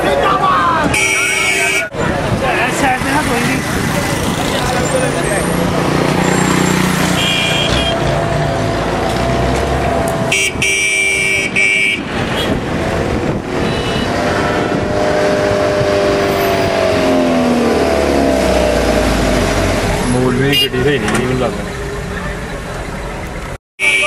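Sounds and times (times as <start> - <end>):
busy road traffic: 0.0 - 24.0
vehicle horn honking: 0.9 - 2.0, 6.4 - 8.1, 10.3 - 12.6, 13.6 - 15.0, 20.4 - 20.9, 23.8 - 24.0.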